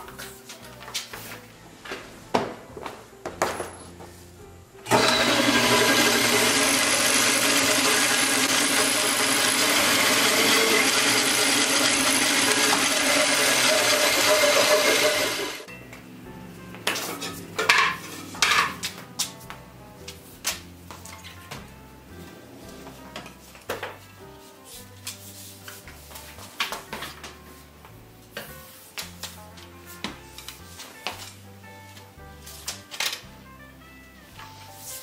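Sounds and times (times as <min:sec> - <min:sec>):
band saw motor running: 0:04.8 - 0:15.7.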